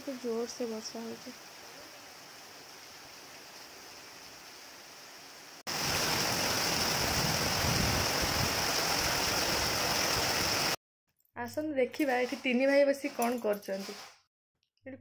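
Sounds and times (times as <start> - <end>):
heavy rain pouring on trees: 0.0 - 10.8.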